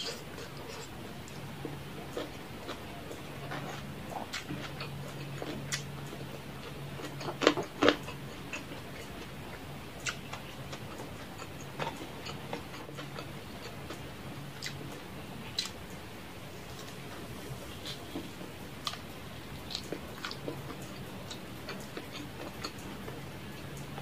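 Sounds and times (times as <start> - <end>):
low steady hum: 0.0 - 24.0
mouth chewing wet smacks: 10.0 - 14.0.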